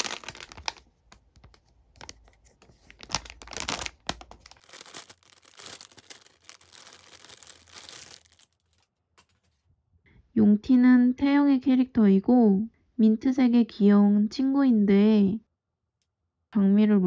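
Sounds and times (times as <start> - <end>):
plastic bag crinkling: 0.0 - 1.2, 2.0 - 8.9.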